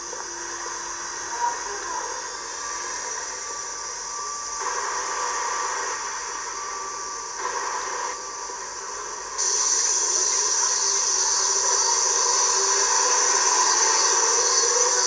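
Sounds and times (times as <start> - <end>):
faint wavering murmur: 0.0 - 15.0
high-pitched hissing: 0.0 - 15.0.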